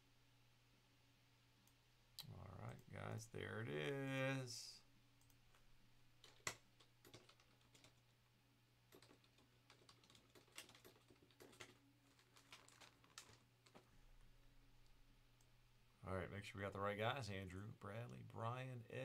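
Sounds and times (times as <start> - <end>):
faint low hum: 0.0 - 19.0
typing on computer keyboard: 6.2 - 8.1, 8.9 - 13.8.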